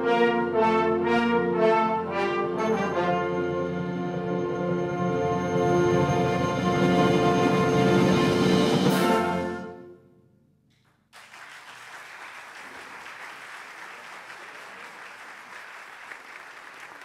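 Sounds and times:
audience applause: 0:11.1 - 0:17.0.

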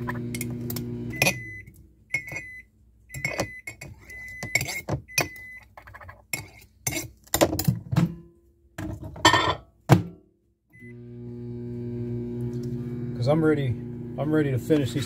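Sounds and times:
microwave humming: 0:00.0 - 0:03.6, 0:10.8 - 0:15.0
keypad beep: 0:01.1 - 0:05.7.

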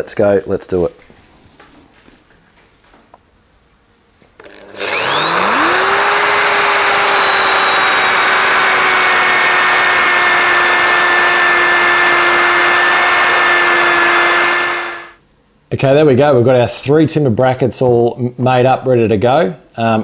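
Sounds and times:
electric drill boring into wood: 0:04.4 - 0:15.2.

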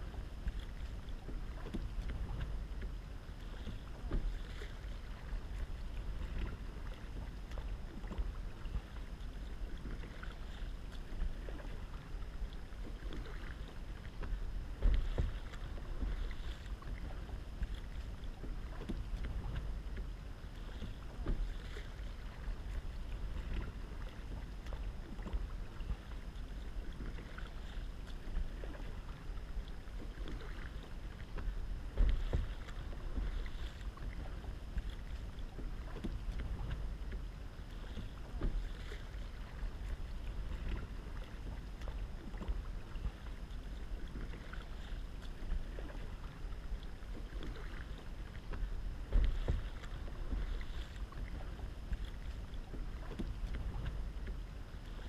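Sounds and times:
low wind rumble on microphone: 0:00.0 - 0:55.0
paddle dipping and splashing: 0:00.0 - 0:55.0
water washing along kayak hull: 0:00.0 - 0:55.0
low thump: 0:31.9 - 0:33.3.

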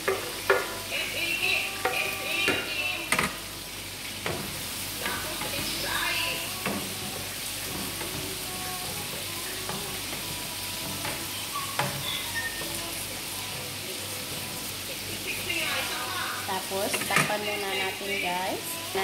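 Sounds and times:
spatula knocking against pan: 0:00.0 - 0:00.9, 0:01.8 - 0:03.4, 0:06.6 - 0:12.0
tomatoes sizzling in a frying pan: 0:00.0 - 0:19.0.

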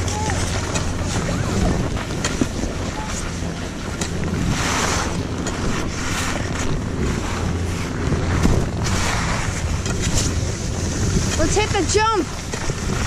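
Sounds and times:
wind buffeting microphone: 0:00.0 - 0:13.0
skis sliding on packed snow: 0:04.4 - 0:13.0.

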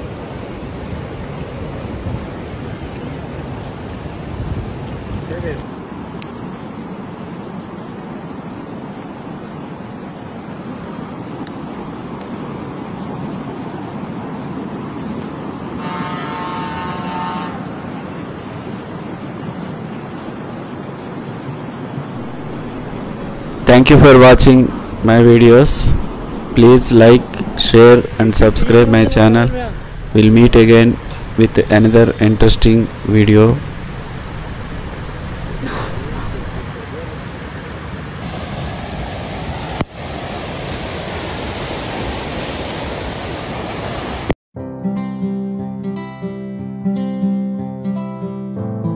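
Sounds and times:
floodwater rushing: 0:00.0 - 0:44.4
vehicle horn: 0:15.8 - 0:17.9.

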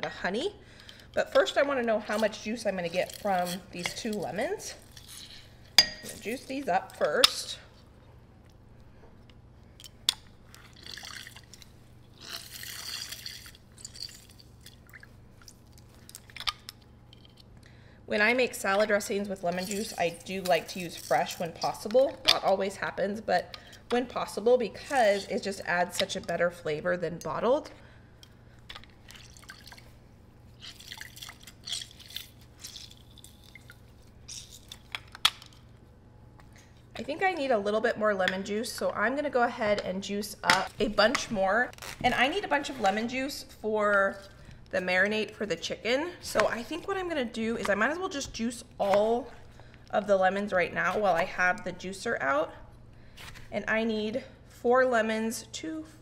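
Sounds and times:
juice dripping and squirting: 0:10.1 - 0:17.5, 0:28.5 - 0:29.9, 0:30.5 - 0:35.6.

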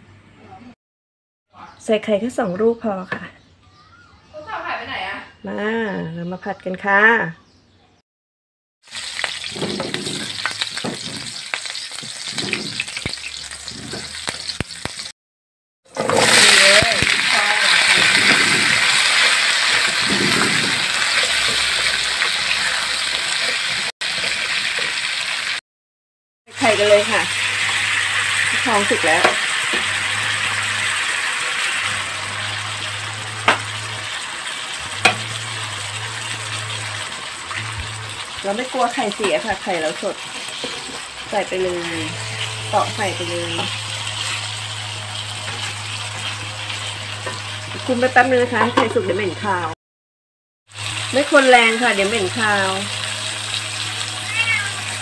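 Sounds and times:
garlic sizzling in hot oil: 0:08.8 - 0:15.1, 0:15.9 - 0:25.6, 0:26.5 - 0:49.6, 0:50.7 - 0:55.0
spatula scraping a wok: 0:09.0 - 0:15.1, 0:15.9 - 0:25.4, 0:26.6 - 0:49.2.

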